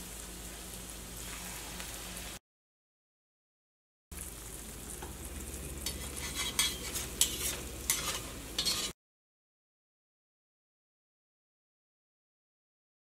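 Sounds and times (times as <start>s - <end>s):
batter deep-frying in oil: 0.0s - 2.4s, 4.1s - 9.0s
metal spatula scraping pan: 5.8s - 9.0s.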